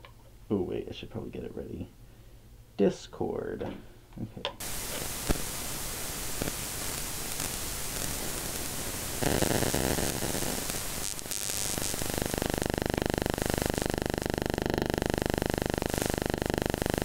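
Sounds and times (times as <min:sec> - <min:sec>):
fast buzzing pulse: 0:04.6 - 0:17.0
static hiss: 0:04.6 - 0:17.0.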